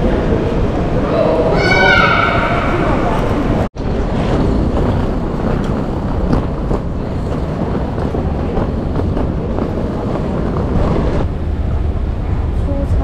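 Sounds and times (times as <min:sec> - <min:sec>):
train rumbling on rails: 0:00.0 - 0:13.0.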